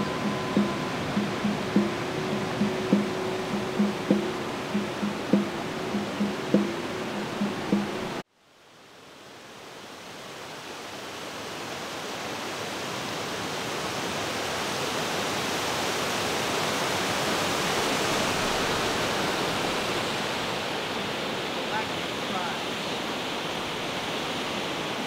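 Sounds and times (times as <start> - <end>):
guitar music: 0.0 - 8.2
steady rushing noise: 0.0 - 8.2.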